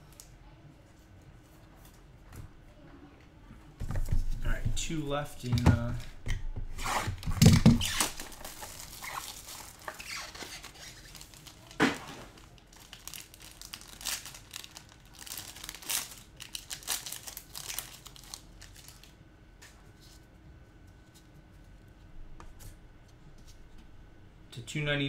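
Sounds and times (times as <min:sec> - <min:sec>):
sharp plastic crackle: 0:06.7 - 0:19.2
plastic wrapping crinkling and tearing: 0:06.8 - 0:19.2.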